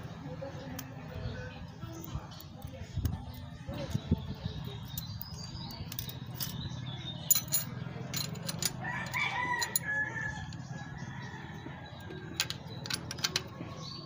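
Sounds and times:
rooster crowing: 8.8s - 11.8s.

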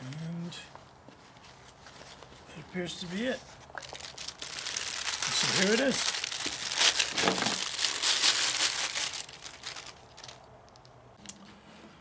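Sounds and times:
plastic wrapping crinkling: 1.4s - 11.4s.

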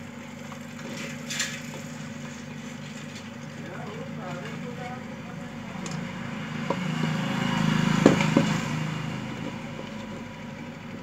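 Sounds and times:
passing vehicle engine hum: 4.0s - 11.0s.

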